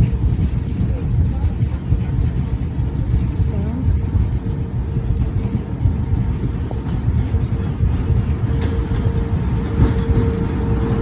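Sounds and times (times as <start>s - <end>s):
train low rumble: 0.0s - 11.0s.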